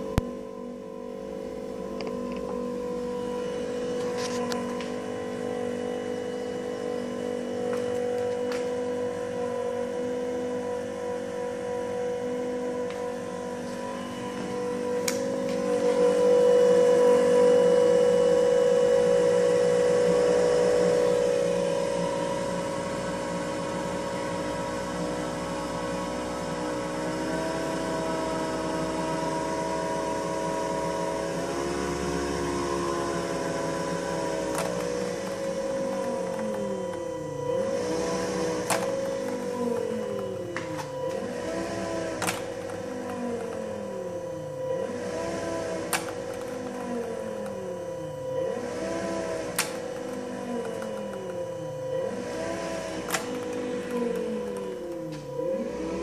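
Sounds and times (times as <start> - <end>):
electric blower fan humming: 0.0 - 56.0.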